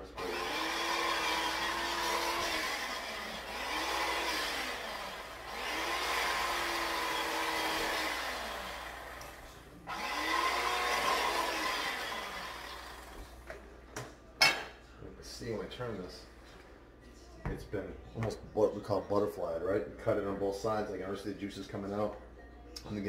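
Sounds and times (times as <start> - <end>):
electric carving knife buzzing: 0.2 - 9.3.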